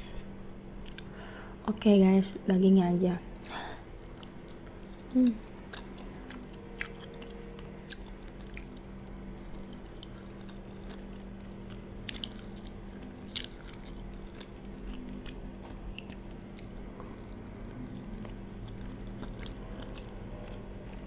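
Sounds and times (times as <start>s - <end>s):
low hum: 0.0s - 21.0s
chewing soft food: 0.8s - 1.2s, 3.4s - 21.0s
person humming: 5.1s - 5.4s.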